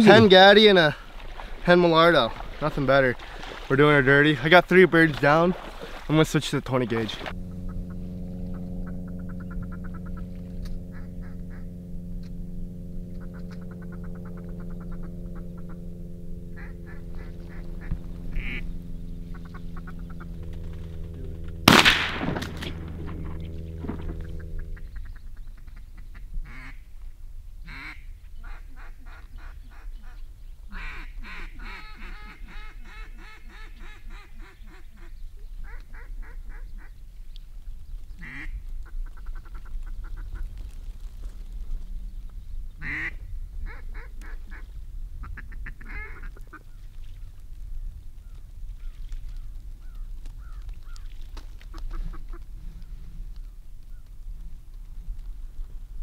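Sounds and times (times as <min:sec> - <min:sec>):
ducks quacking: 0:04.1 - 0:11.8, 0:16.5 - 0:21.9, 0:27.7 - 0:37.0, 0:38.2 - 0:40.6, 0:42.8 - 0:47.2, 0:51.7 - 0:52.5
rapid chattering duck calls: 0:16.6 - 0:20.4, 0:27.7 - 0:36.9, 0:42.8 - 0:44.6, 0:45.2 - 0:46.7.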